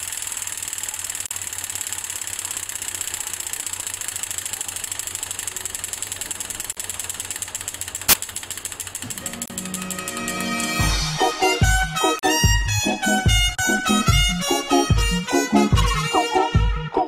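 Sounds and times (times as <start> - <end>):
fast mechanical clatter: 0.0 - 10.5.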